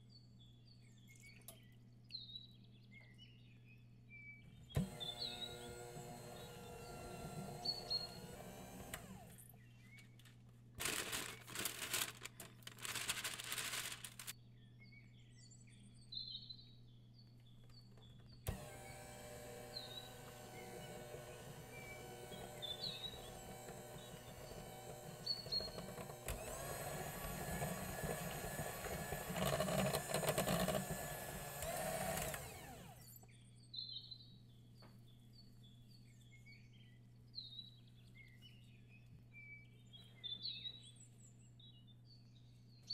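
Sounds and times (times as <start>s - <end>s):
recorded birdsong chirps: 0.0s - 42.9s
electric hand mixer whirring: 4.8s - 9.5s, 18.5s - 33.2s.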